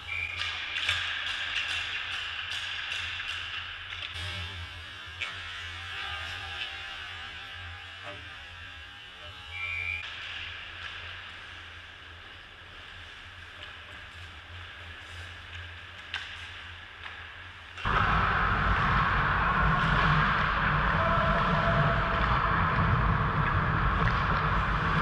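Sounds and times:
steady low hum: 17.8 - 25.0
distant voices: 17.9 - 25.0.

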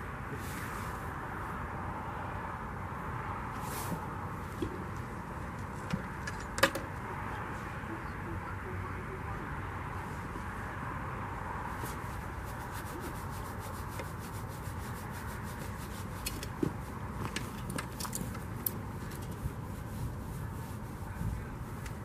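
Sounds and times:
steady low rumble: 6.9 - 22.0.

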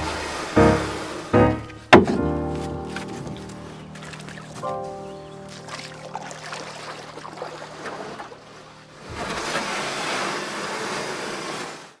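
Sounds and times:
music: 0.0 - 9.0.

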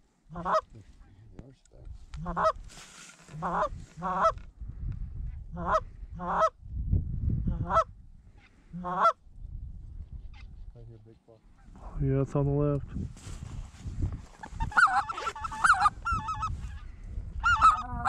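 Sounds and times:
goose honking: 0.3 - 0.8, 2.2 - 2.6, 3.3 - 4.4, 7.6 - 9.2, 14.4 - 16.8, 17.4 - 18.0
wind rumble on microphone: 0.7 - 11.0, 11.6 - 18.0.

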